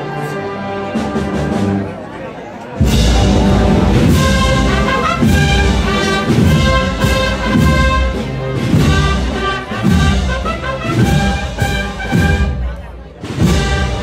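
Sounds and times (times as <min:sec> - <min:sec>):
brass band playing a march: 0:00.0 - 0:14.0
bass drum beat: 0:02.8 - 0:09.2.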